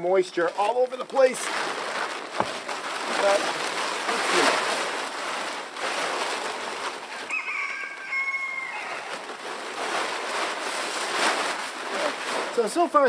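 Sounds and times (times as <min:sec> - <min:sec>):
steady rustling hiss: 0:00.0 - 0:13.0
rooster crowing: 0:07.2 - 0:09.2.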